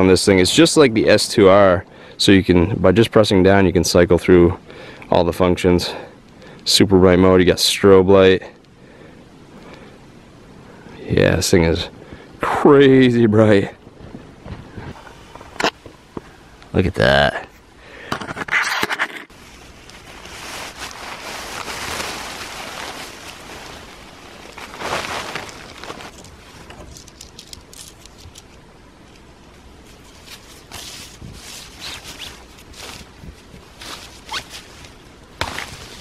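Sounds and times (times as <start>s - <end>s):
tent fabric rustling: 19.3s - 28.4s, 29.8s - 36.0s
small clicks and crunches: 24.4s - 29.3s.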